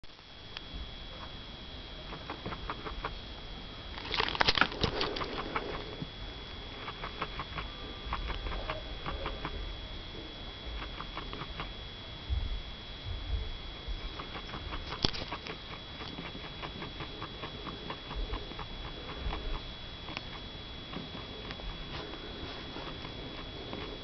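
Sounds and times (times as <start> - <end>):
guinea pig chewing crunchily: 2.0 - 3.2, 3.9 - 6.0, 6.6 - 9.7, 10.6 - 11.7, 13.8 - 24.0.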